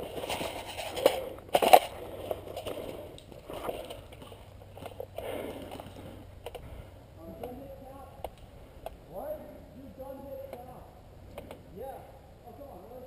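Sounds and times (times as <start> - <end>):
dry leaves crunching: 0.0 - 4.9.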